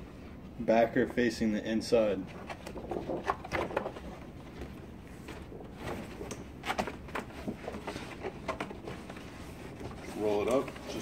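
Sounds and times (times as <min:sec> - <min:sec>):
plastic film crinkling: 0:02.4 - 0:11.0.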